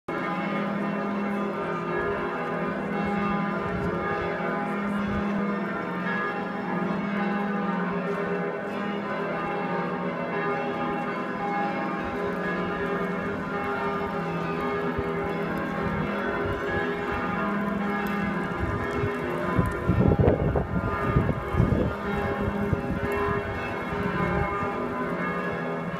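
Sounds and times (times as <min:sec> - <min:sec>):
church bells ringing: 0:00.1 - 0:25.9.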